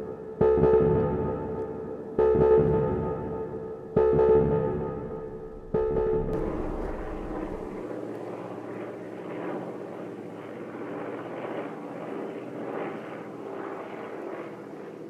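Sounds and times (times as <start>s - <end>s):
propeller plane droning overhead: 0.0s - 15.0s.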